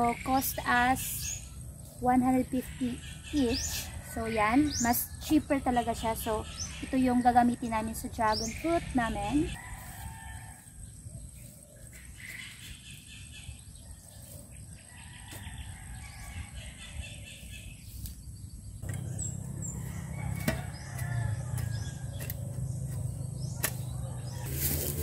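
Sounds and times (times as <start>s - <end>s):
shovel digging and scraping dirt: 17.3s - 25.0s
chickens calling: 18.8s - 25.0s.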